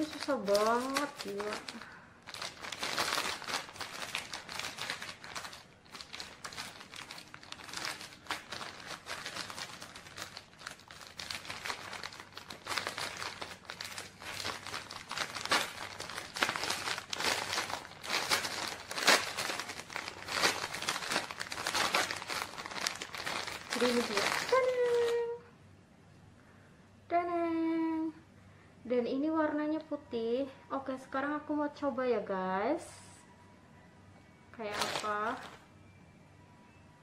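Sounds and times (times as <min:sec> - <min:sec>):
plastic packaging crinkling: 0:00.0 - 0:25.4, 0:34.6 - 0:35.6.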